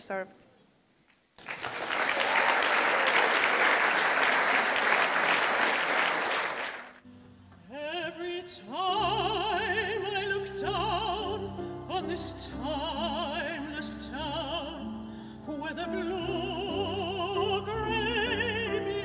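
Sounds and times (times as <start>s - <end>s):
audience applause: 1.4s - 7.0s
grand piano: 7.0s - 19.0s
woman singing operatically: 7.7s - 19.0s.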